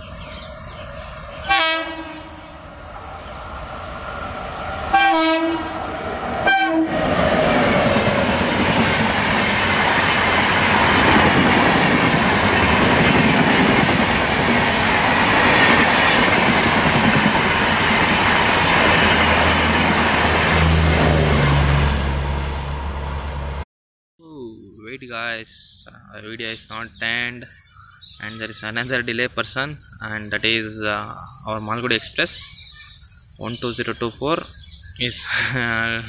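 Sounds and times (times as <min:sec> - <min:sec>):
train wheels rumbling on rail: 0:00.0 - 0:23.4
train horn: 0:01.5 - 0:02.6, 0:04.9 - 0:07.0.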